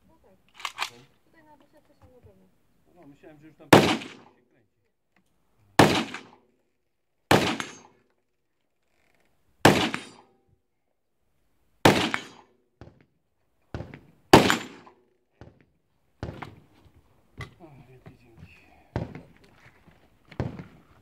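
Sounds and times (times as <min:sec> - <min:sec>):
loud gunshots with echo: 0:03.7 - 0:04.3, 0:05.8 - 0:06.4, 0:07.3 - 0:07.9, 0:09.6 - 0:10.2, 0:11.8 - 0:12.4, 0:14.3 - 0:14.9.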